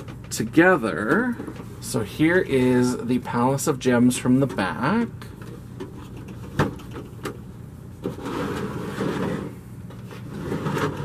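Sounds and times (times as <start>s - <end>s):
plastic rubbing and scraping: 8.0s - 11.0s.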